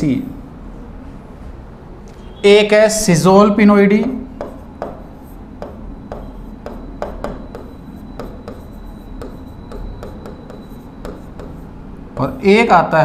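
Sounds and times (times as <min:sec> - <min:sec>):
marker writing on a whiteboard: 0:04.0 - 0:12.8.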